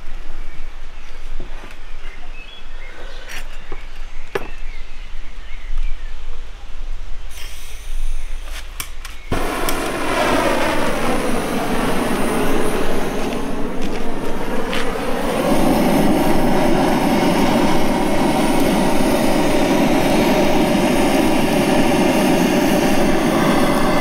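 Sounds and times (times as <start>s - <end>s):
blowtorch flame rushing: 7.3s - 24.0s.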